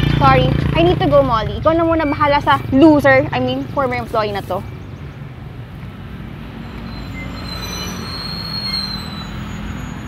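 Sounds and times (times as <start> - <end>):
engine humming: 0.0 - 10.0
thin high squeal: 6.6 - 10.0.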